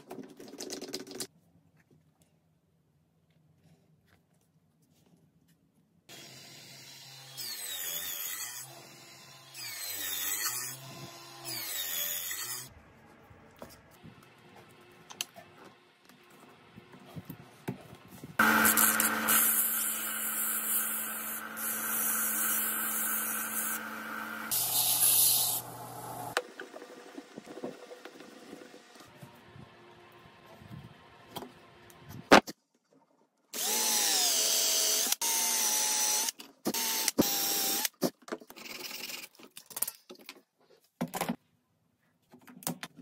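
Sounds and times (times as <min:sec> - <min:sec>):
power tool motor on wood: 0:18.4 - 0:26.4, 0:33.6 - 0:37.9.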